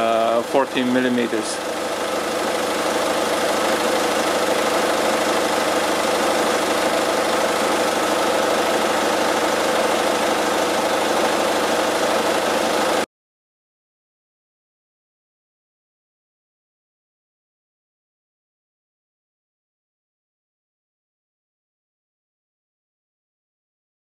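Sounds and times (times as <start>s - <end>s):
diesel engine idling: 0.0s - 13.0s.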